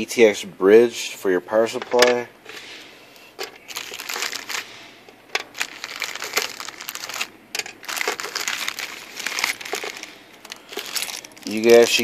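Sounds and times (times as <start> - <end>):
plastic bag crinkling: 3.4 - 12.0.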